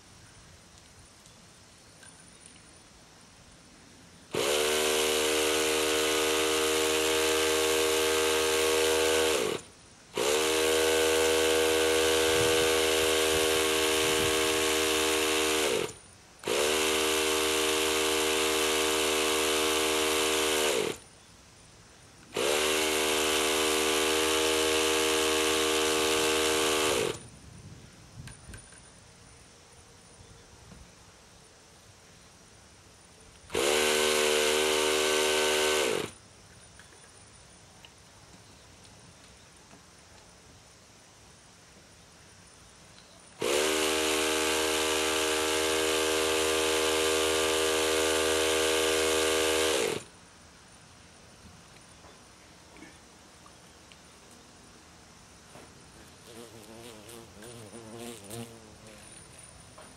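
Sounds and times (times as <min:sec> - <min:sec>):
small electric motor whirring: 0:04.3 - 0:21.1, 0:22.3 - 0:27.3, 0:33.5 - 0:36.2, 0:43.3 - 0:50.1, 0:56.0 - 0:59.6.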